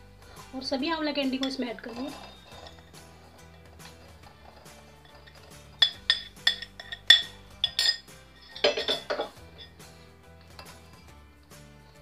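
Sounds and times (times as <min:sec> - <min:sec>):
soft background music: 0:00.0 - 0:12.0
strainer rattling in bowl: 0:01.2 - 0:09.7
metal spoon clinking on strainer: 0:01.2 - 0:09.8.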